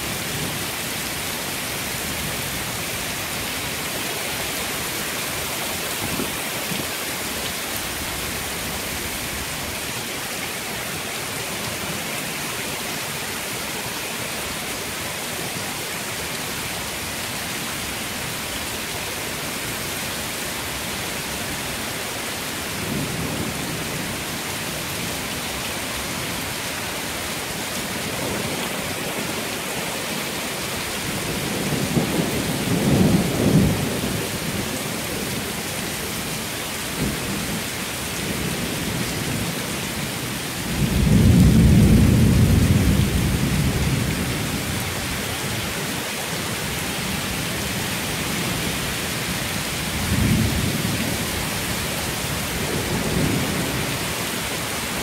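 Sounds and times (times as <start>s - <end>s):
heavy rain falling: 0.0s - 55.0s
thunder rumbling: 40.7s - 44.9s.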